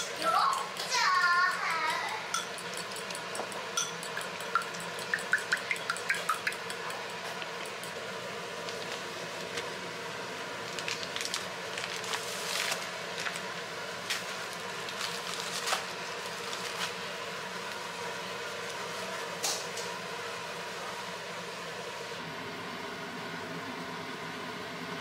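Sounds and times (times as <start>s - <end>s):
steady background hum: 0.0s - 25.0s
plastic wrapping crinkling: 10.6s - 17.0s
pastry sheets rustling: 10.7s - 17.0s.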